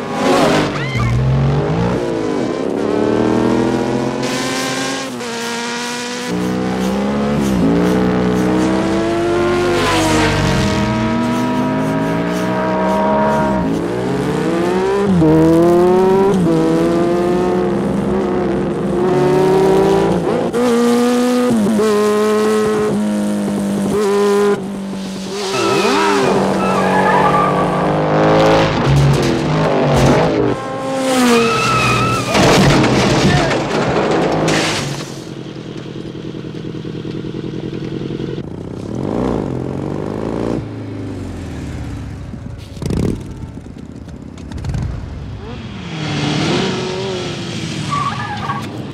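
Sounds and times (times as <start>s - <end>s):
tyre squeals: 25.3s - 28.0s, 31.1s - 32.5s
metal drums tumbling crash: 32.0s - 35.5s
racing motorcycle engines revving: 36.2s - 47.9s.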